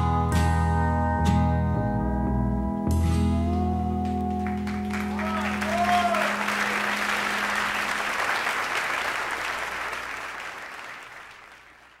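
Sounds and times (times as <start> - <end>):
audience applauding: 4.0 - 12.0.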